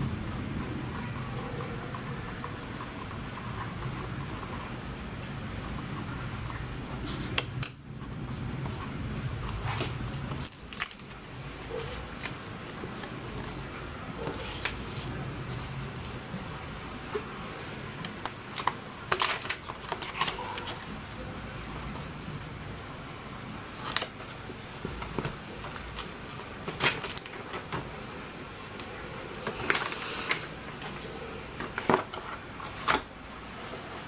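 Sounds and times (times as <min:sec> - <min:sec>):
paper rustling: 0:08.2 - 0:22.1, 0:23.7 - 0:34.0.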